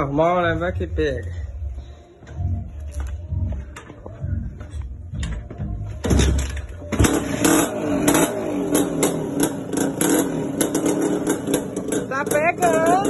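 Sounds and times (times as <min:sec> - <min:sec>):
engine popping: 0:06.9 - 0:13.0
motorcycle engine running unevenly: 0:06.9 - 0:13.0.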